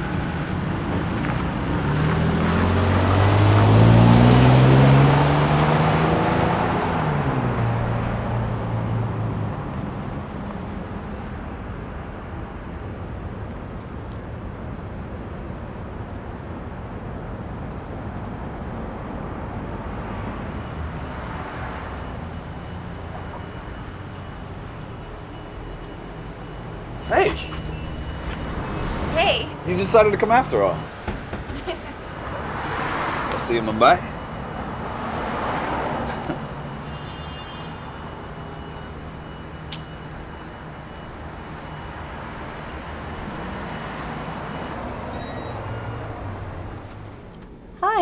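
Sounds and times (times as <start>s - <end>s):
street traffic noise: 0.0s - 48.0s
car engine accelerating past: 1.3s - 8.0s.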